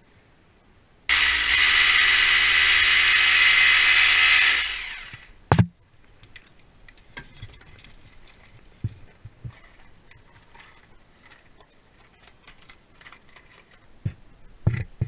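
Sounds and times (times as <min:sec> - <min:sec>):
cordless drill running: 0:01.1 - 0:05.3.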